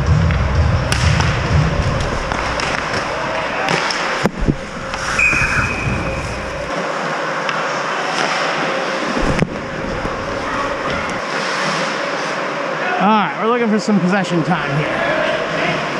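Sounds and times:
hockey sticks and puck clacking: 0.3 - 6.8, 7.4 - 12.0
skates scraping ice: 1.2 - 12.6.

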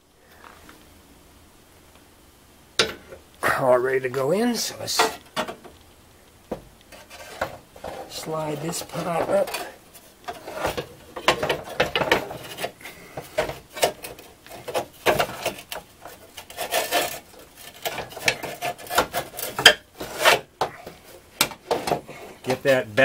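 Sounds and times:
metal scraping against door frame: 6.9 - 22.7.

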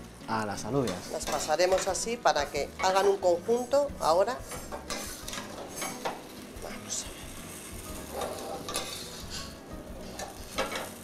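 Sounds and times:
pots simmering hiss: 0.0 - 11.0
metal ladle scraping pots: 4.4 - 6.3, 8.0 - 11.0.

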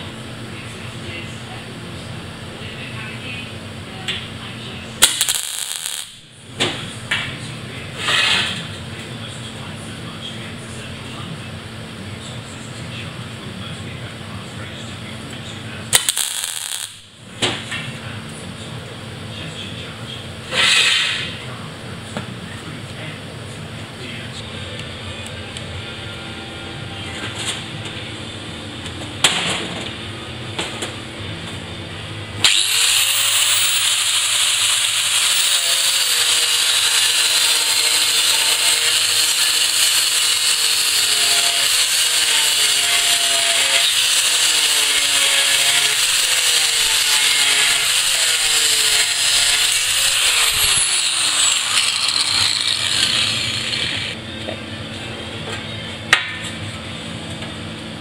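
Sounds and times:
angle grinder cutting steel: 5.0 - 6.2, 16.0 - 17.0, 32.4 - 54.2.

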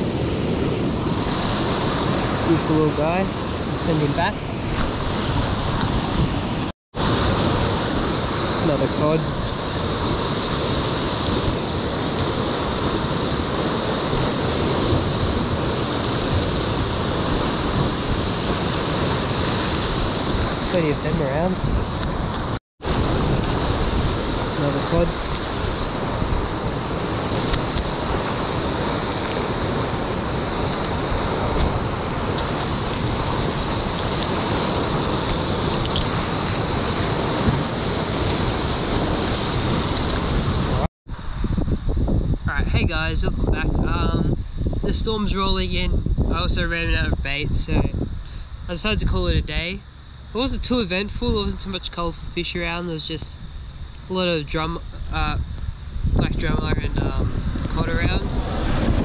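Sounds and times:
waves breaking against rocks: 0.0 - 40.9
wind buffeting microphone: 0.0 - 59.0.

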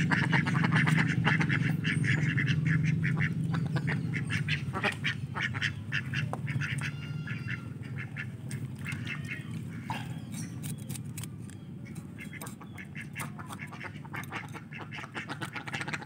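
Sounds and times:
ducks quacking: 0.0 - 10.7, 11.8 - 16.0
steady low hum: 0.0 - 16.0.

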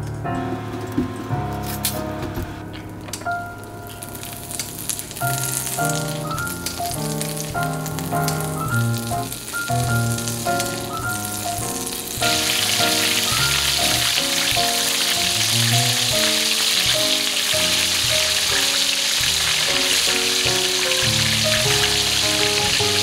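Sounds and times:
light background music: 0.0 - 23.0
butter sizzling in frying pan: 3.9 - 23.0.

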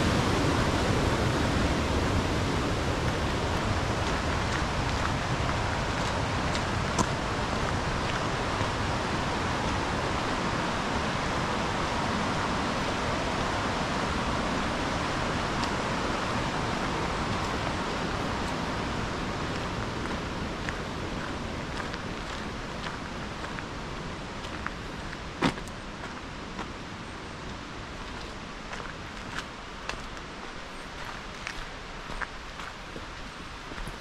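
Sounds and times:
creek water rushing: 0.0 - 34.0.

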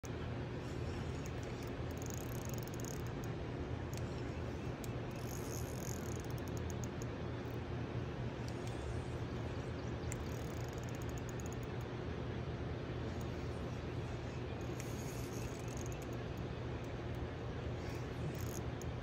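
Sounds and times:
fishing reel clicking: 1.0 - 7.1, 10.0 - 11.8, 14.6 - 17.2, 18.3 - 19.0.

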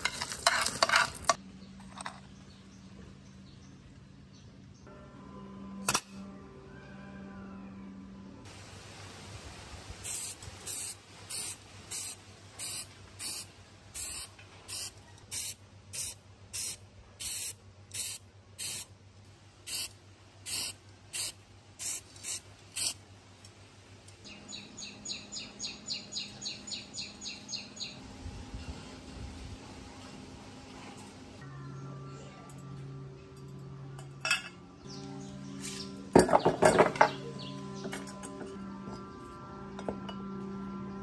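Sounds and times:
spray paint can hissing bursts: 10.0 - 18.9, 19.6 - 23.0.

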